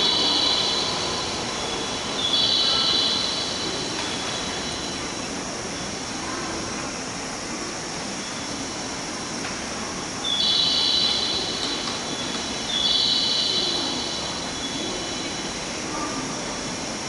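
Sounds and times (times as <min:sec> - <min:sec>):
electric train running noise: 0:00.0 - 0:06.7.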